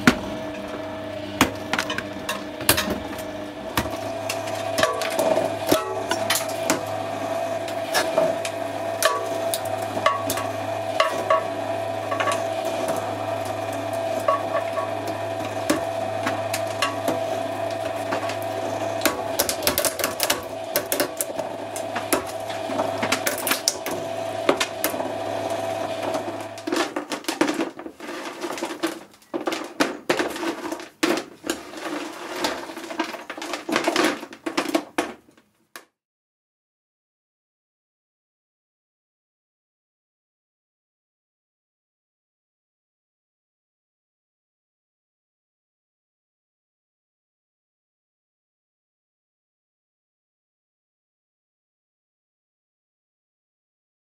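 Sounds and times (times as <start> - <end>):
shredder motor humming: 0.0 - 34.3
plastic cracking and snapping: 17.8 - 25.0, 26.1 - 35.9
plastic pieces clattering: 26.1 - 35.5.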